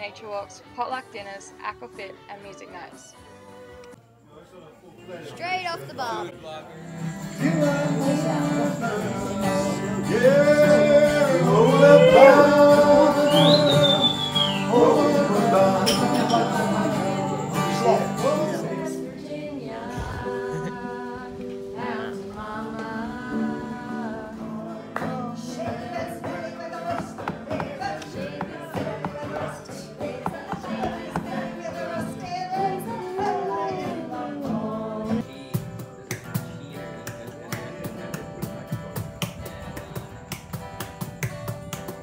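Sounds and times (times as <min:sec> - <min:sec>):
acoustic guitar: 0:00.0 - 0:04.2, 0:05.4 - 0:42.0
man singing: 0:07.2 - 0:21.2.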